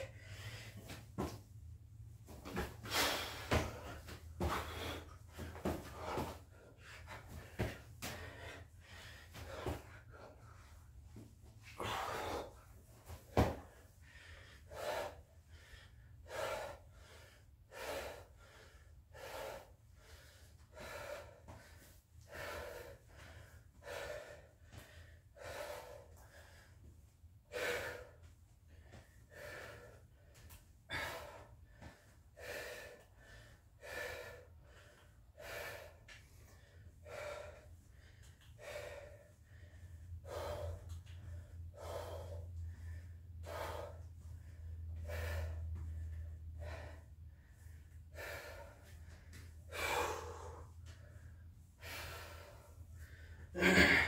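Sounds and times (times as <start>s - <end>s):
person breathing hard: 0.0s - 54.0s
steady low hum: 0.0s - 54.0s.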